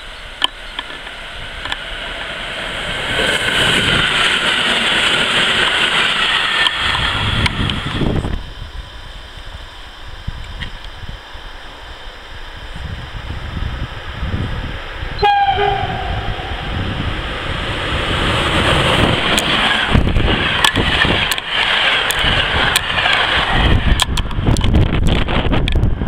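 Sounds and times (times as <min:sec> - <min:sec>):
train rumble: 0:00.0 - 0:26.0
locomotive horn blast: 0:15.2 - 0:16.6.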